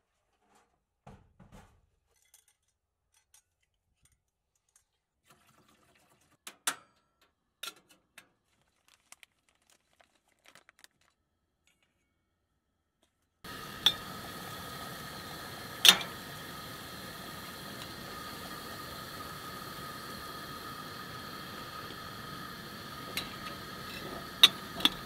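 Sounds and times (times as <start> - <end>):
paper bag crinkling and tearing: 8.5 - 11.2
water pouring into metal pot: 13.5 - 25.0.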